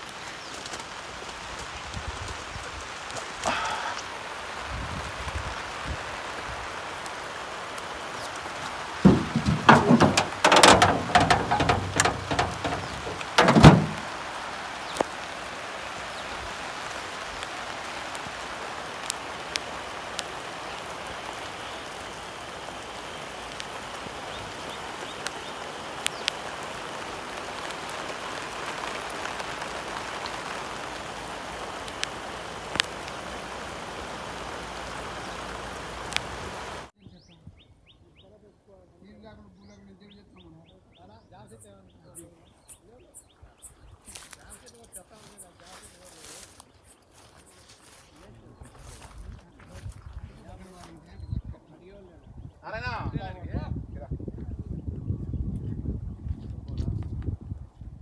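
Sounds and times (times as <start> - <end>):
steady rain: 0.0 - 37.0, 43.5 - 51.1.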